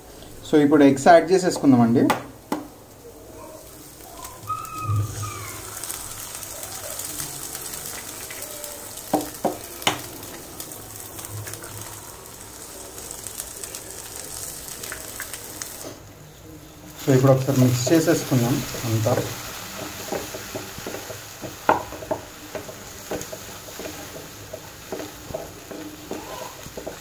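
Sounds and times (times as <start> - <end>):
eggs sizzling in hot oil: 0.0 - 27.0
egg cracking taps: 1.6 - 2.7, 9.1 - 10.1, 19.1 - 27.0.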